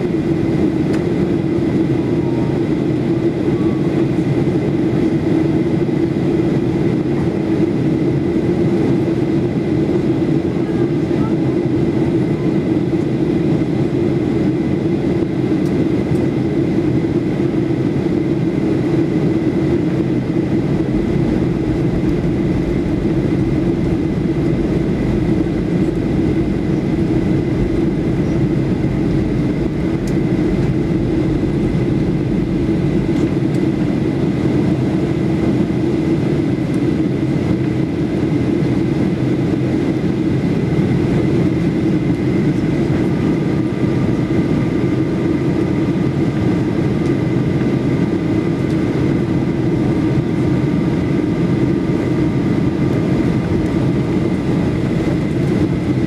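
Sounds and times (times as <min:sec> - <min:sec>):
jet engine hum: 0:00.0 - 0:56.0
thin steady whine: 0:17.8 - 0:49.2
air rushing over fuselage: 0:19.9 - 0:35.4.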